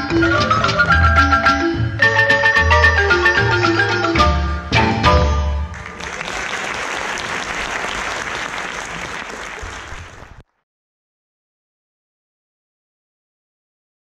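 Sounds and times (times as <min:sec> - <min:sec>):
music: 0:00.0 - 0:06.2
audience applauding: 0:05.7 - 0:10.6.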